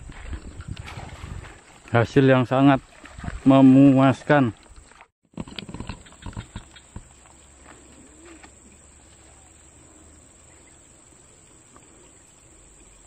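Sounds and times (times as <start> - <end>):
high insect drone: 5.7 - 13.0.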